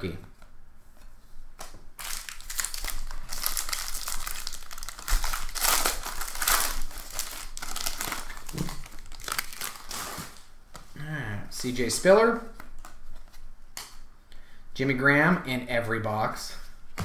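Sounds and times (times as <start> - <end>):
foil wrapper tearing and crinkling: 2.0 - 10.5.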